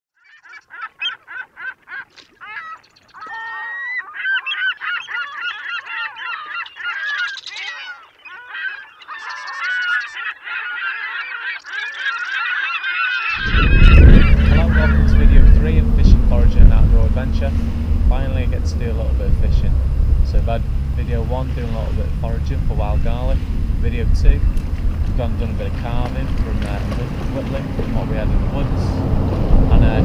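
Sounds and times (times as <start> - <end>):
flock of birds calling: 0.2 - 30.0
loud low rumble: 13.4 - 30.0.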